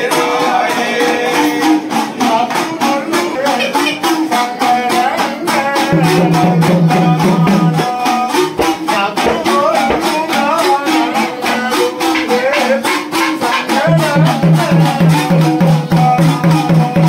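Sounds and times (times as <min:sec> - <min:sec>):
man singing folk song: 0:02.1 - 0:17.0
hourglass drums beating: 0:05.9 - 0:10.7.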